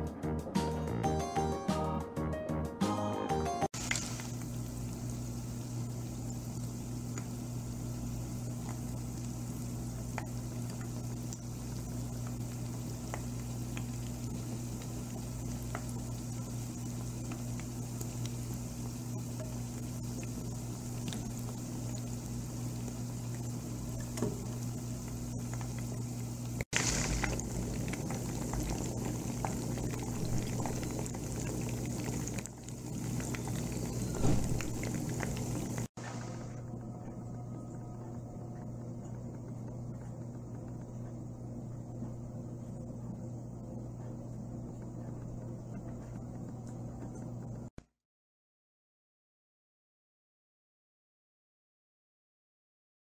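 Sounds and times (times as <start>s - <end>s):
small crackles: 3.8s - 36.9s
chicken deep-frying in oil: 3.8s - 43.4s
low steady hum: 3.8s - 47.7s.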